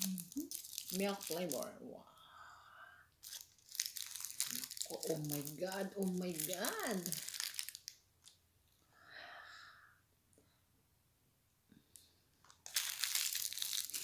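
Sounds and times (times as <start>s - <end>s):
foil wrapper crinkling: 0.0s - 1.7s, 3.2s - 8.3s, 12.5s - 14.0s
chocolate being bitten: 3.2s - 5.2s, 12.5s - 14.0s.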